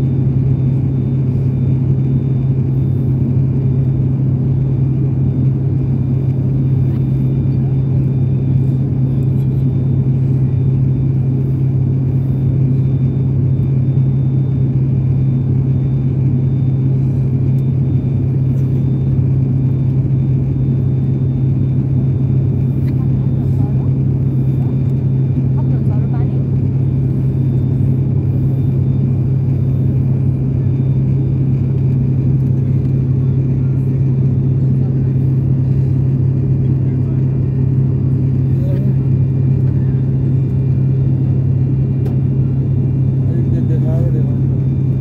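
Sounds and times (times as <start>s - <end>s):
faint high whines: 0.0s - 45.0s
propeller airliner cabin drone: 0.0s - 45.0s.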